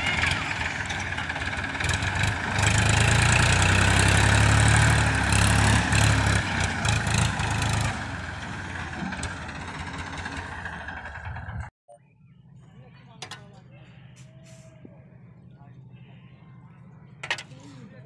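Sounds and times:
diesel tractor engine working hard: 0.0s - 11.7s.

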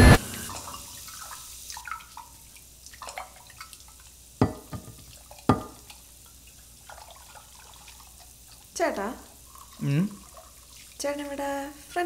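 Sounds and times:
dishes clinking in a sink: 4.4s - 5.8s
tap running: 4.4s - 5.8s.

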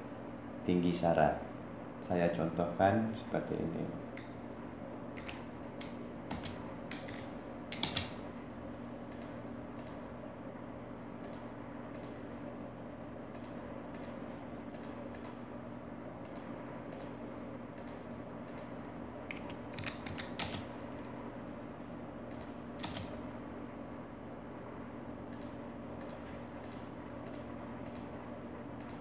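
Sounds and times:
steady electrical hum: 0.0s - 29.0s
computer keyboard keystrokes: 5.2s - 8.2s, 9.1s - 10.0s, 11.2s - 12.2s, 13.3s - 15.4s, 16.2s - 17.2s, 17.8s - 20.7s, 22.3s - 23.2s, 25.3s - 28.1s, 28.8s - 29.0s
faint regular clicks: 9.1s - 10.0s, 11.2s - 12.2s, 13.3s - 15.4s, 16.2s - 17.2s, 17.8s - 20.6s, 22.3s - 23.2s, 25.3s - 28.1s, 28.8s - 29.0s.

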